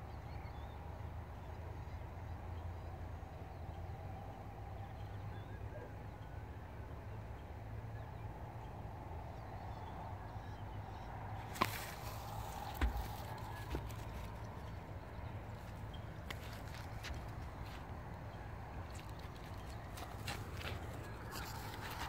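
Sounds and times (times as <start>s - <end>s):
sharp knocks: 12.7s - 14.0s.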